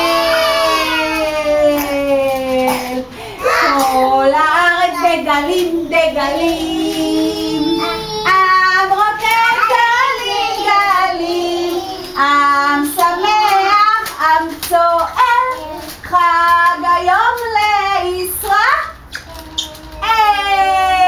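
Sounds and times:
high-voiced person singing: 3.5 - 8.6.

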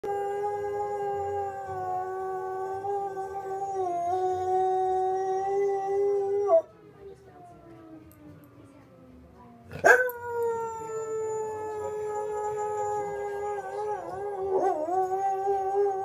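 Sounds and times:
dog howling: 0.0 - 6.7, 9.8 - 16.0.

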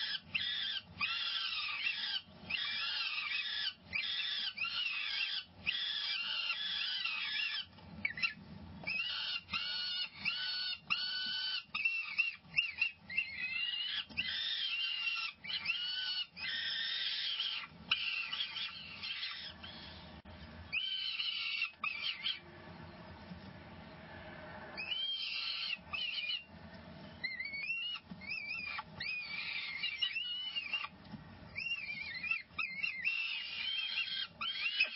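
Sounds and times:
falcon chicks begging calls: 0.0 - 20.0, 20.7 - 22.4, 27.2 - 34.9.

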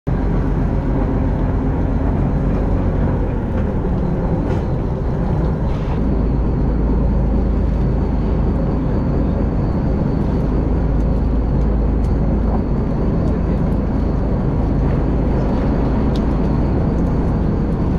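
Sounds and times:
boat engine droning: 0.1 - 17.9.

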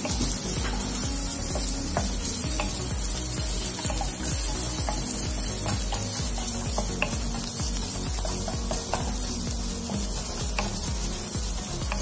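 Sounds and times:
onions sizzling in oil: 0.0 - 12.0
spatula tapping on pan: 0.0 - 12.0
wooden spatula scraping a wok: 0.0 - 12.0.

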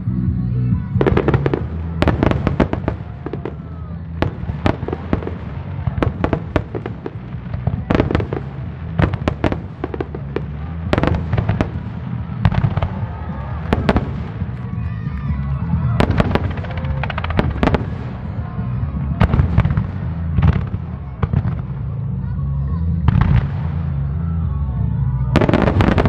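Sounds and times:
low rumble: 0.0 - 26.0
fireworks bangs and cracks: 0.7 - 26.0.

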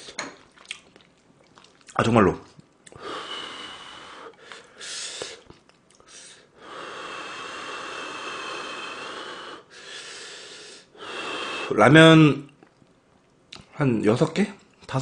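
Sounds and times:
person blowing on food: 6.0 - 11.8.

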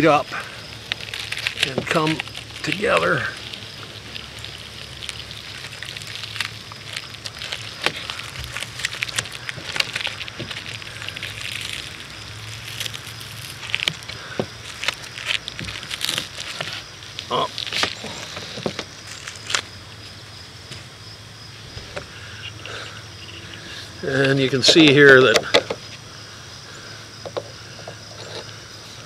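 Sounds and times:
plastic film peeling off adhesive: 0.8 - 19.7.

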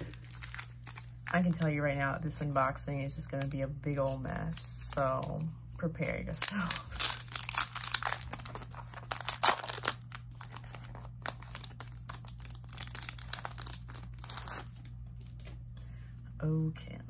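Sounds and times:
plastic wrapping crinkling: 0.0 - 2.6, 6.3 - 15.6.

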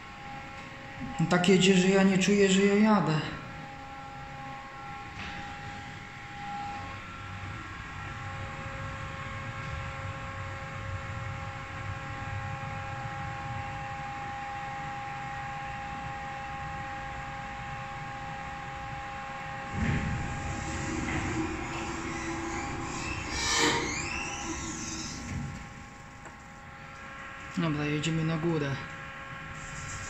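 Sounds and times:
lift hum over low rumble: 17.3 - 26.8.

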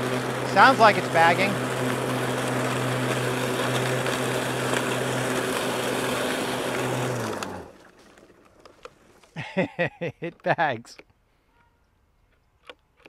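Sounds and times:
mower motor winding down: 0.0 - 8.4
electric mower running: 0.0 - 8.8.

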